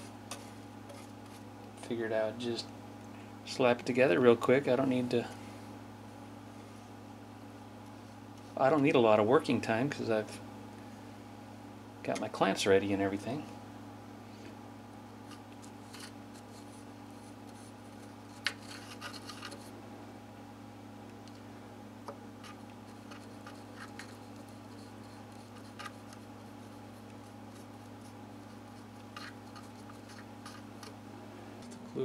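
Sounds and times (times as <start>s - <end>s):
light scratches: 0.0s - 1.5s, 15.3s - 19.7s, 22.4s - 31.0s
steady low hum: 0.0s - 32.0s.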